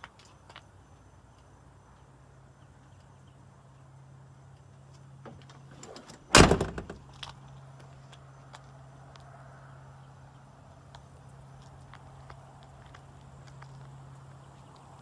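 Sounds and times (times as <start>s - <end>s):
door rattling: 5.2s - 7.1s
truck door slamming: 5.2s - 7.2s
door latch clicks: 5.3s - 7.0s.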